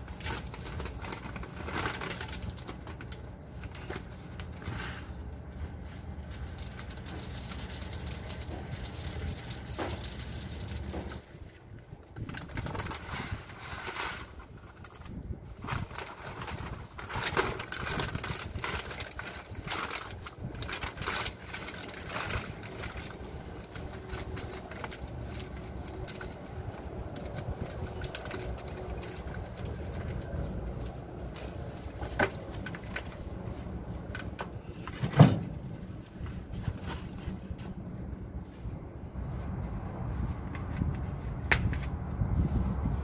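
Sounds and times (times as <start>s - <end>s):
plastic bag rustling: 0.0s - 37.8s
steady low rumble: 0.0s - 43.0s.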